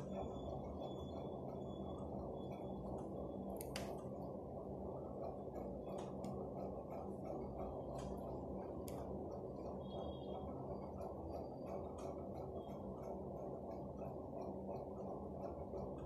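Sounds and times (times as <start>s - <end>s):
steady low hum: 0.0s - 16.0s
pen nib scratching on paper: 5.2s - 16.0s.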